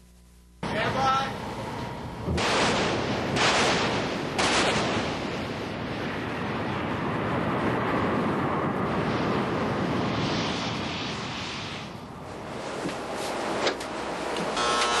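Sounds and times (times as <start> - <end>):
wind noise on microphone: 1.6 - 14.6
naval gun blast: 2.3 - 5.8.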